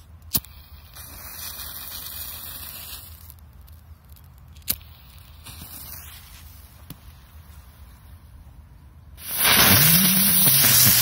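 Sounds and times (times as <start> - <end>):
lit fuse hissing: 9.2 - 11.0.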